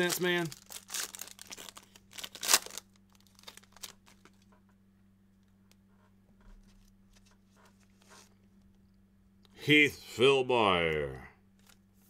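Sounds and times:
foil pack ripping open: 0.0s - 4.4s
foil crinkling and tapping: 0.0s - 4.6s
low steady hum: 0.0s - 12.0s.

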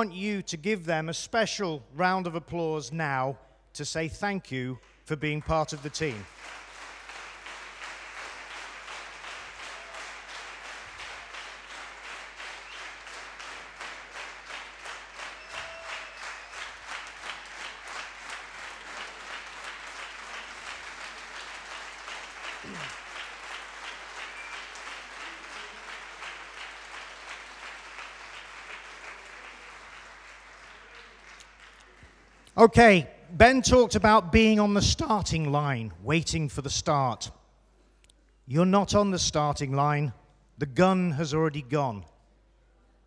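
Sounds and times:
rhythmic clapping in unison: 4.8s - 32.6s
audience applauding: 5.3s - 32.6s.

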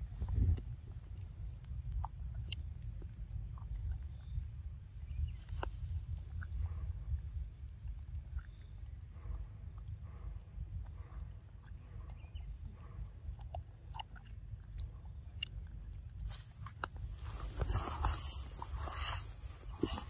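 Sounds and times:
faint high insect chirp: 0.0s - 20.0s
monkey chewing soft fruit: 0.0s - 20.0s
steady low rumble: 0.0s - 20.0s
wet mouth clicks: 0.2s - 4.1s, 13.3s - 20.0s.

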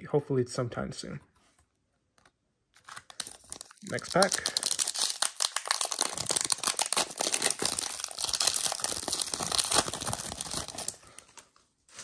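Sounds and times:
foil wrapper tearing and crinkling: 2.8s - 11.3s.

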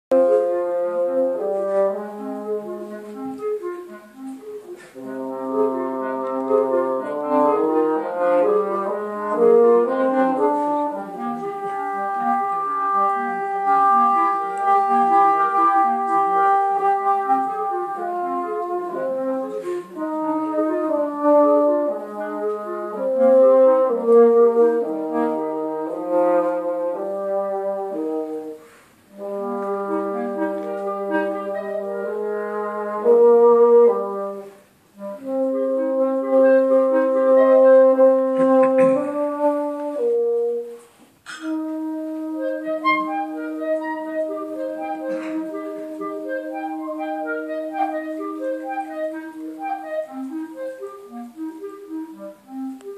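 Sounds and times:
bassoon low line: 0.1s - 52.9s
clarinet melody: 0.1s - 52.9s.

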